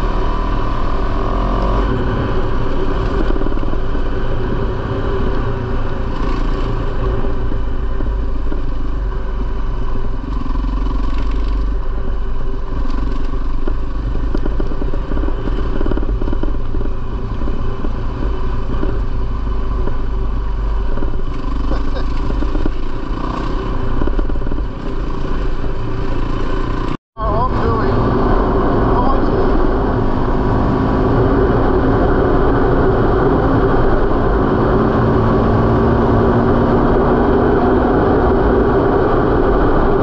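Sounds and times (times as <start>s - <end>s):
dirt bike engine running: 0.0s - 40.0s.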